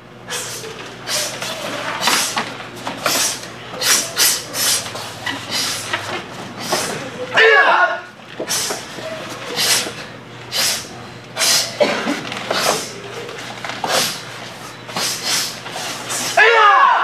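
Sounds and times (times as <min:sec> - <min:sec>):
sharp hissing exhalations: 0:03.1 - 0:05.9, 0:09.5 - 0:11.8, 0:14.9 - 0:16.4.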